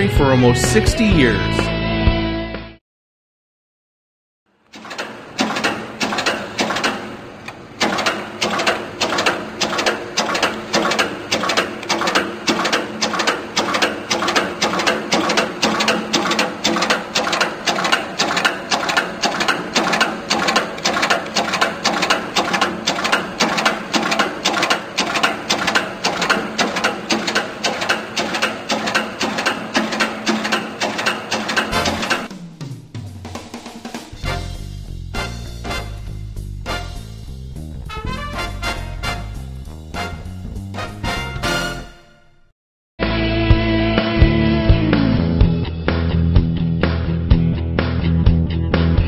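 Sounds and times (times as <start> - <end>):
crimping press ram striking: 4.7 - 32.5
steady machine hum: 4.8 - 32.9.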